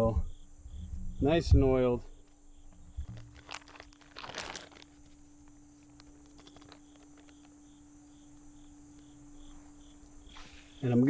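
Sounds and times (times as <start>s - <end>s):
crickets chirping: 0.0s - 11.0s
plastic bag crinkling: 3.0s - 7.5s.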